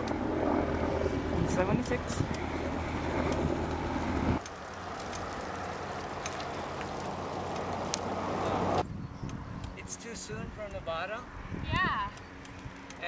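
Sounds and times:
wind rush on microphone: 0.0s - 4.4s, 7.6s - 12.9s
road noise: 0.0s - 13.0s.

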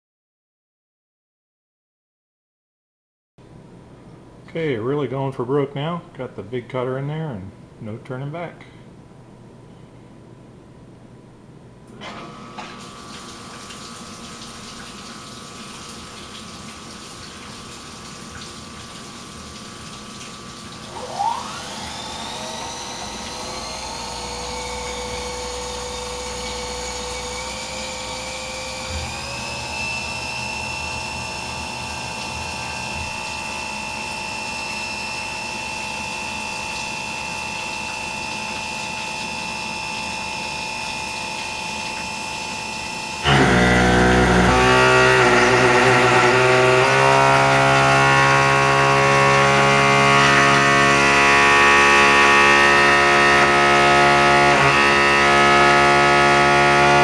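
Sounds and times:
coolant flowing: 12.4s - 54.4s
spindle whine: 20.8s - 57.0s
end mill cutting metal: 20.9s - 35.2s, 35.8s - 57.0s.

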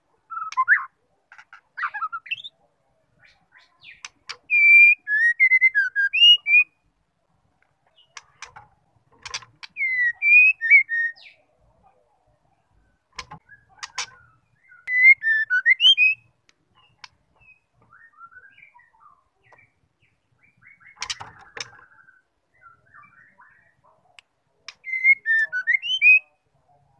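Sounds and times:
soft bird chirps: 0.1s - 26.9s
bird fluty whistles: 24.8s - 26.3s.

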